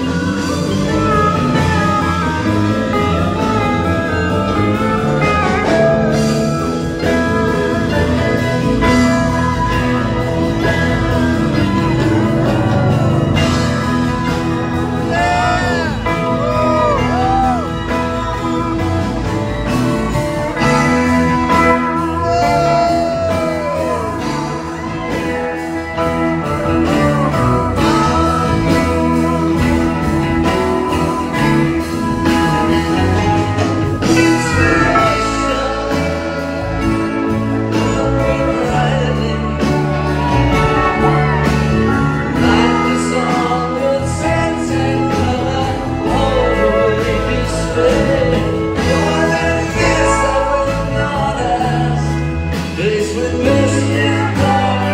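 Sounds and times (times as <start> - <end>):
person singing: 0.0 - 19.8, 20.5 - 54.9
live band with guitars: 0.0 - 54.9.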